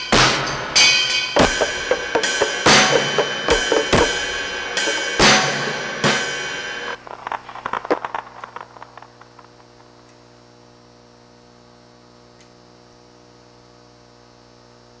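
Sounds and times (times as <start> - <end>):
drum and cymbal hits: 0.0 - 8.4
electrical mains hum: 0.0 - 15.0.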